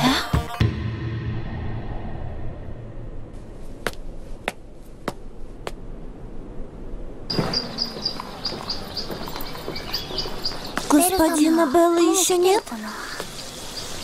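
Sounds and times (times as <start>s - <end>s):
birds chirping: 7.3s - 14.0s.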